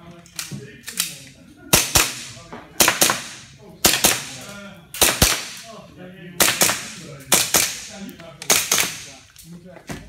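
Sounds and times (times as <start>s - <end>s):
handgun shots ringing indoors: 1.8s - 4.4s, 5.0s - 5.7s.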